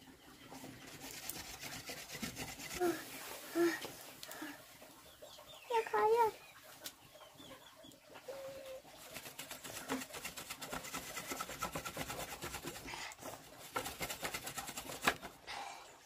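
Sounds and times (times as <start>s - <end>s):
stick pounding charcoal on wood: 9.3s - 12.8s, 13.6s - 15.3s.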